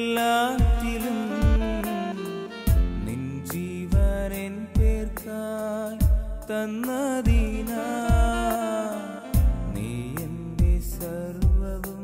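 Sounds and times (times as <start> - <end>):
man singing: 0.0 - 12.0
deep drum beat: 0.6 - 2.1, 2.7 - 6.5, 7.2 - 8.7, 9.4 - 12.0
band accompaniment: 0.6 - 5.4, 7.3 - 11.6.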